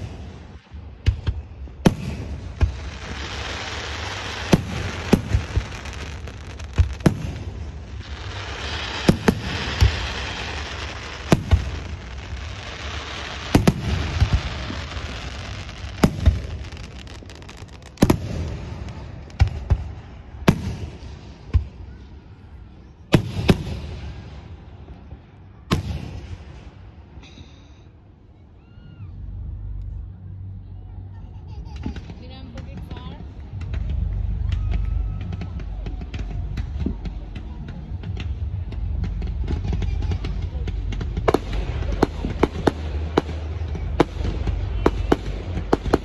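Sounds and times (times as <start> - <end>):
firework bangs: 0.0 - 22.0, 23.1 - 24.7, 25.6 - 27.1, 31.8 - 46.0
firework hiss: 1.9 - 19.4.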